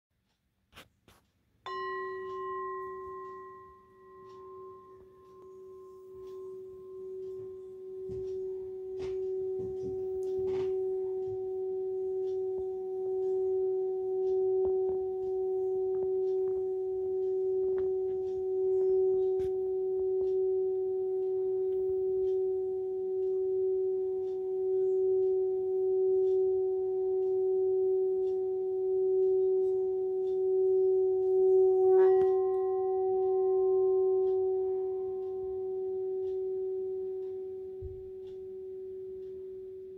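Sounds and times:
singing bowl rim rubbed: 0.8s - 39.9s
singing bowl ringing: 1.6s - 39.9s.

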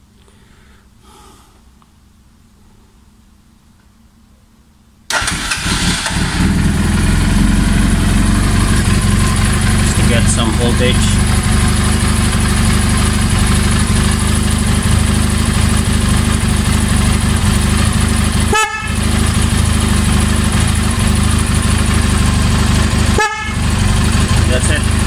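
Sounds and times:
motorcycle engine running: 5.6s - 25.0s
low-tone horn blasts: 18.3s - 19.6s, 22.8s - 24.8s.

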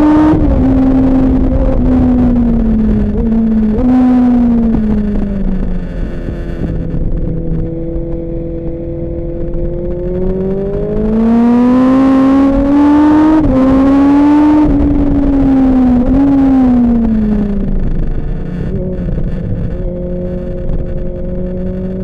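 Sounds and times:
superbike engine accelerating: 0.0s - 22.0s.

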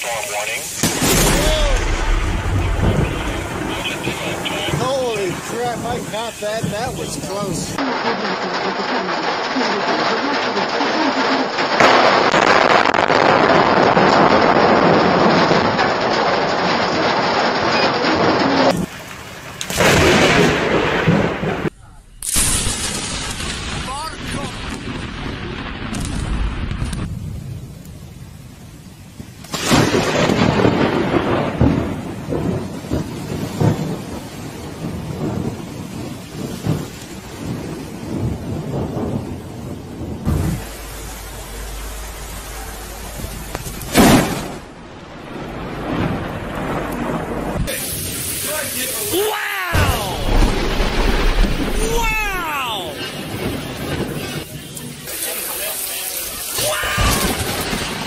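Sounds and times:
heavy rain: 0.0s - 58.0s
thunder rumbling: 0.0s - 58.0s
strong wind: 26.4s - 47.8s.

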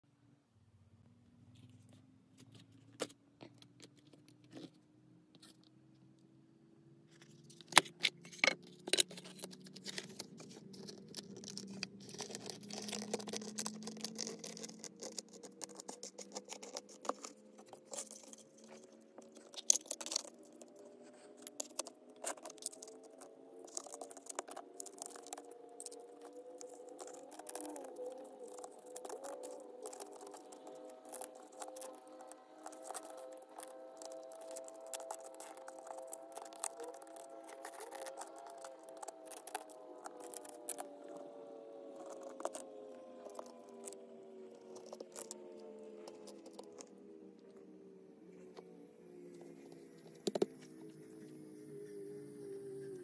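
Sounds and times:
wooden puzzle pieces clicking: 7.6s - 41.2s
faint hum rising in pitch: 9.4s - 53.0s.

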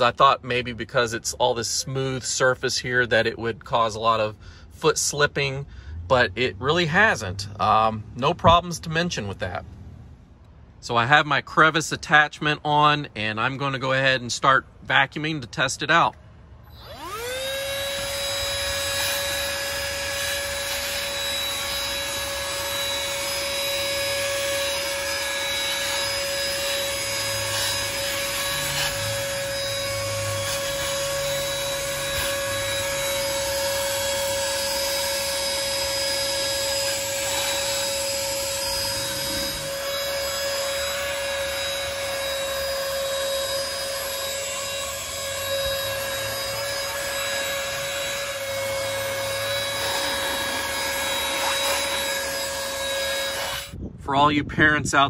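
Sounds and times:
handheld vacuum whining: 16.7s - 53.8s.

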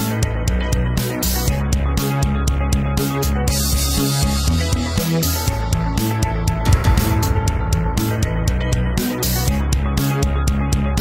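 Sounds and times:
bass line: 4.0s - 10.9s
fast drum beat: 6.7s - 9.2s.

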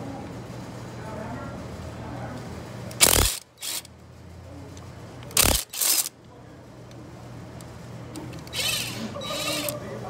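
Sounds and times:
hand ratchet clicking: 2.9s - 3.9s, 5.3s - 6.1s.

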